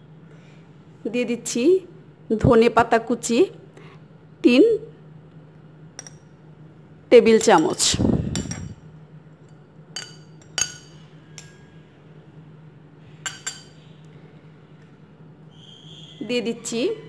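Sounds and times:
low steady hum: 0.0 - 17.0
spoon clinking on ceramic plate: 7.4 - 8.8, 9.4 - 11.6, 13.2 - 13.8.

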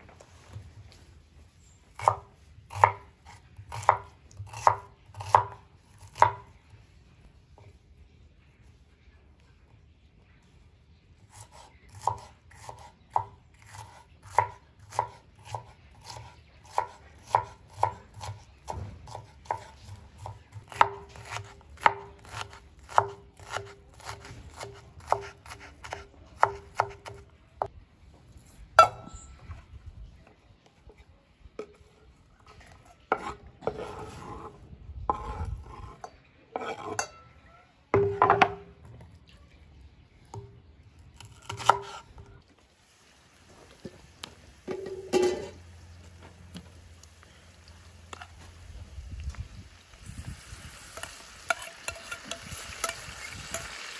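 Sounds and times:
knife chopping on wooden board: 3.7 - 6.5, 12.0 - 27.2
knife blade scraping board: 33.1 - 36.0, 36.6 - 37.0.

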